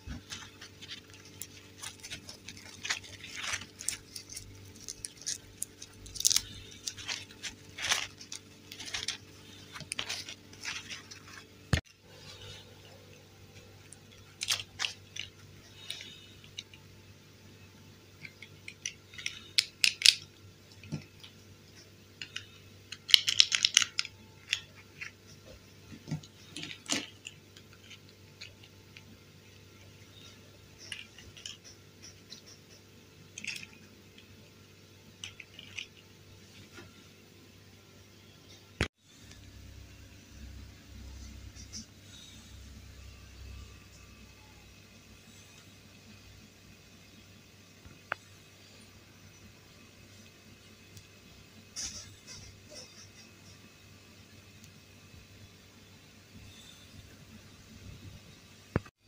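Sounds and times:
fabric rustling: 0.0s - 13.0s
plastic toys clicking and tapping: 18.2s - 29.1s, 30.8s - 34.3s, 35.2s - 36.0s.

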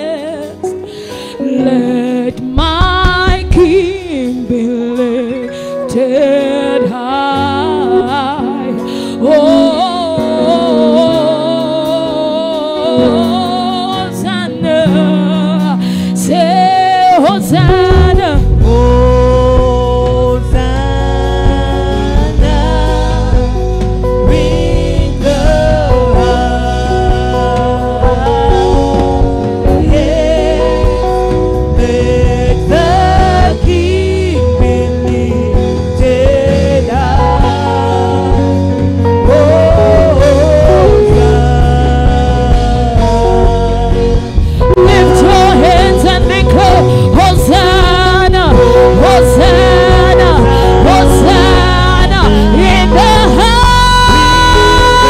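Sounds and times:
band with heavy bass: 0.0s - 55.0s
person singing slow melody: 17.4s - 55.0s.

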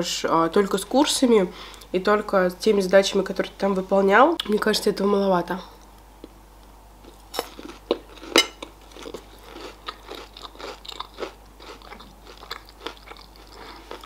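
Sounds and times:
chewing crunchy candy: 7.1s - 14.0s.

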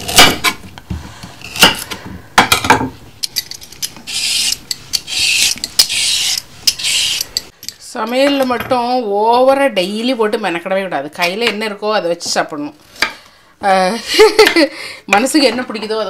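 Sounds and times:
peeler scraping a carrot: 3.8s - 7.5s.

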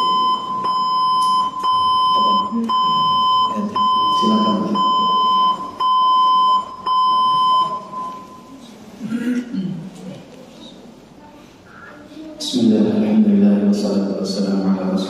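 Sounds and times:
electronic beeping tone: 0.0s - 8.6s
faint man's voice: 3.4s - 5.4s, 11.7s - 15.0s.

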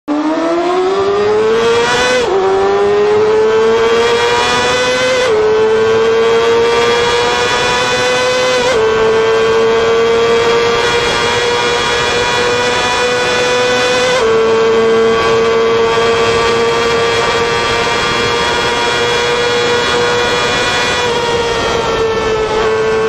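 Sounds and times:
motorcycle engine accelerating in tunnel: 0.1s - 23.0s.

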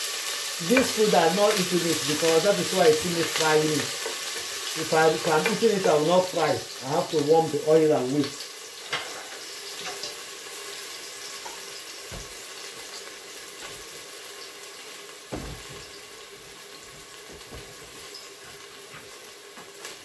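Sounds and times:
onions sizzling in oil: 0.0s - 20.0s
dull knock: 15.3s - 15.9s, 17.3s - 18.0s.

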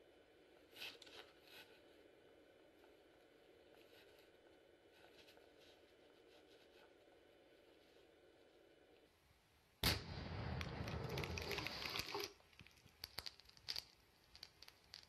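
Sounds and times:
explosion blast rumbling: 9.8s - 12.1s.

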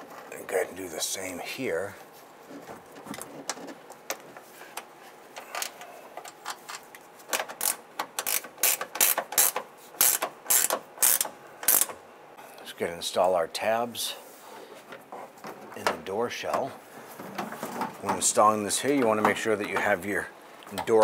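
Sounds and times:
ratcheting wrench clicking: 7.4s - 12.0s.

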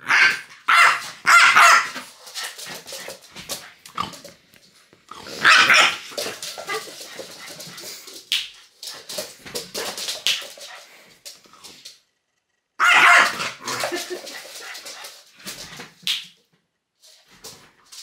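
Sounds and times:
dog barking: 0.0s - 2.0s, 5.4s - 6.1s, 12.8s - 13.8s.

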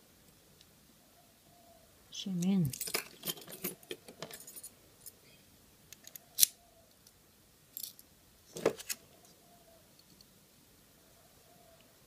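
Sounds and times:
small metal parts clinking: 2.4s - 5.2s, 7.7s - 8.1s.

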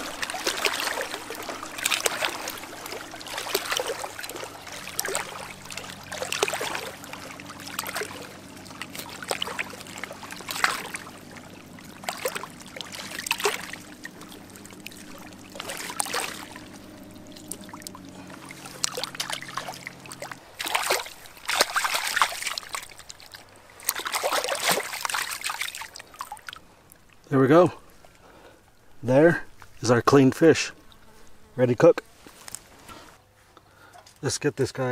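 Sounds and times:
faint low hum: 0.0s - 24.0s
river water splashing and trickling: 0.0s - 33.2s.

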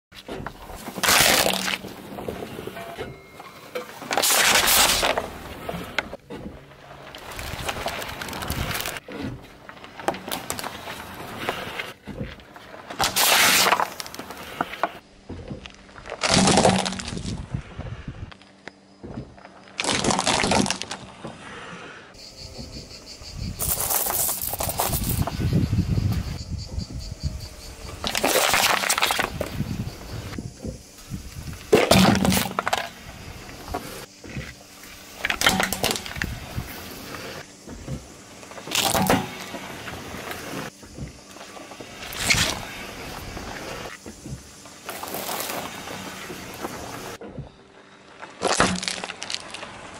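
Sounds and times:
metal can crunching: 0.5s - 2.9s, 3.8s - 6.1s, 6.8s - 14.9s, 19.8s - 21.1s, 28.0s - 29.5s, 31.7s - 33.0s, 35.2s - 36.4s, 38.5s - 39.6s, 48.3s - 49.9s
plastic bottle crushed: 0.6s - 2.4s, 3.8s - 6.2s, 7.0s - 15.0s, 15.6s - 17.4s, 19.8s - 21.2s, 28.0s - 29.6s, 31.7s - 33.0s, 35.2s - 36.4s, 38.6s - 39.7s, 48.3s - 49.9s
plastic bottle crackling: 0.8s - 2.1s, 6.9s - 9.0s, 48.4s - 49.9s
car tyre rolling on asphalt: 4.0s - 16.4s, 23.6s - 49.9s.

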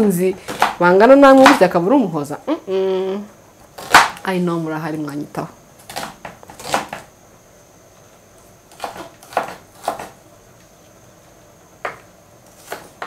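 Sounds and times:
knife chopping on wooden board: 8.7s - 10.2s.

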